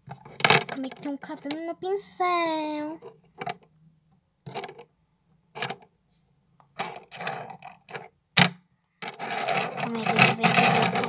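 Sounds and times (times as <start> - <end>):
makeup brushes rustling: 9.0 - 11.0.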